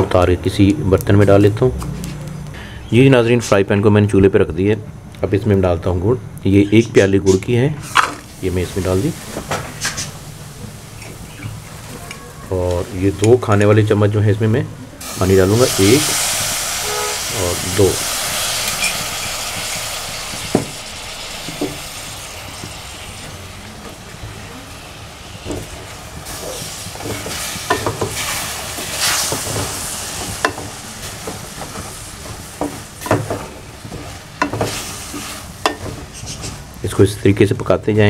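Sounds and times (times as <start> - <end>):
jaggery sizzling in a frying pan: 8.0 - 14.2, 15.0 - 37.0.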